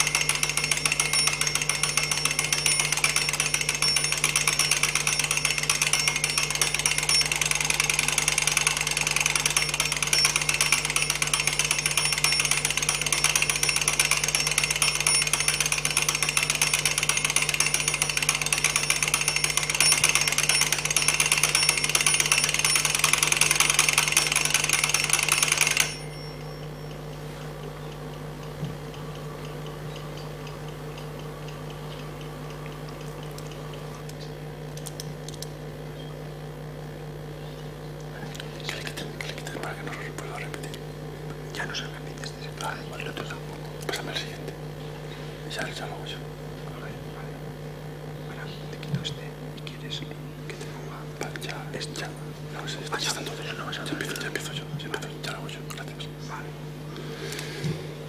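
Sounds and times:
alarm clock ringing: 0:00.0 - 0:27.0.

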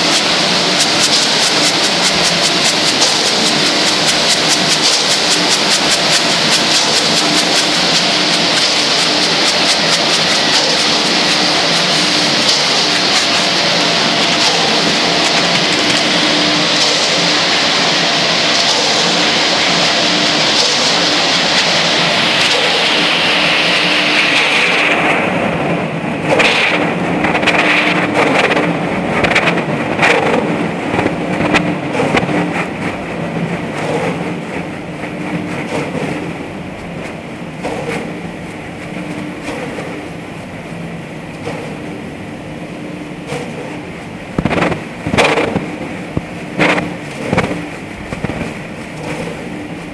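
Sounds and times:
loud rushing hiss: 0:00.0 - 0:35.1
concrete mixer motor humming: 0:00.0 - 0:49.9
clumps knocking in mixer drum: 0:44.4 - 0:49.5.

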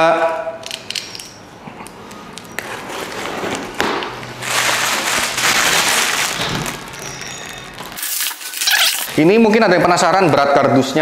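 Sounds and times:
plastic wrapping rustling: 0:02.6 - 0:09.2
knife cutting packing tape: 0:08.0 - 0:09.2.

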